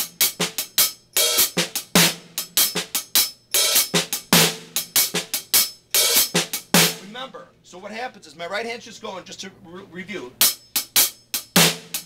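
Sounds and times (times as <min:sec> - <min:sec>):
drum kit shuffle pattern: 0:00.0 - 0:07.9, 0:10.4 - 0:12.0.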